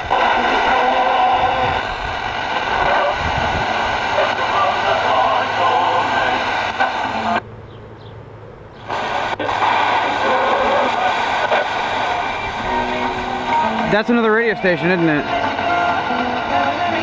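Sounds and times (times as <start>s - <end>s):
tv speaker static hiss: 0.0s - 7.4s, 8.8s - 17.0s.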